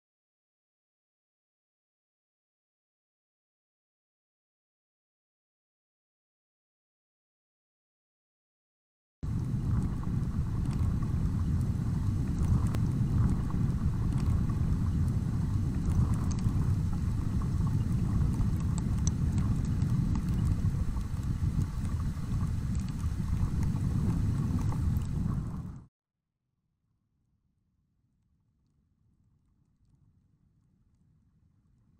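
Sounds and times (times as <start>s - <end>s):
low rushing noise: 9.2s - 25.8s
faint ticks: 9.3s - 25.8s.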